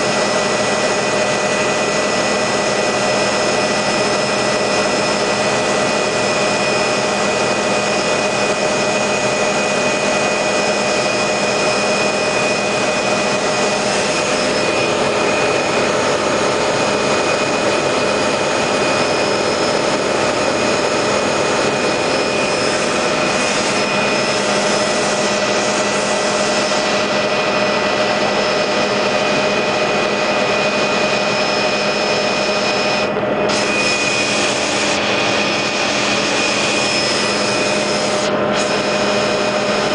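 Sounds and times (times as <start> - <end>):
aircraft cabin engine drone: 0.0 - 39.9
high whine tones: 0.0 - 39.9.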